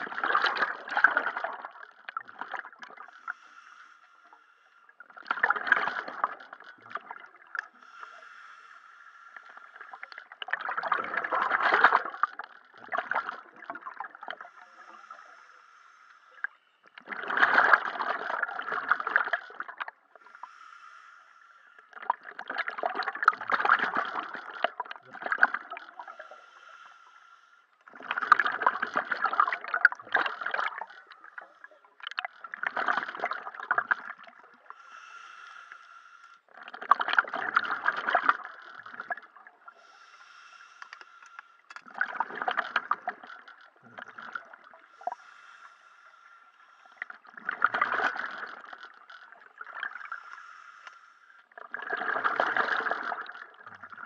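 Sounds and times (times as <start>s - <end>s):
gurgling rush of bubbles: 0.0s - 3.2s, 5.0s - 7.7s, 9.5s - 14.6s, 17.0s - 20.0s, 21.9s - 26.1s, 27.9s - 34.7s, 36.5s - 39.7s, 41.8s - 45.2s, 47.0s - 50.2s, 51.5s - 54.0s.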